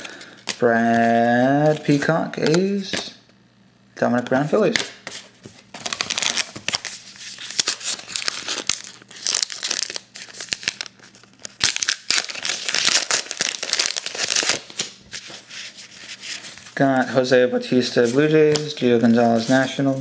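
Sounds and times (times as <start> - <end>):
foil wrapper crinkling and tearing: 5.8 - 15.0.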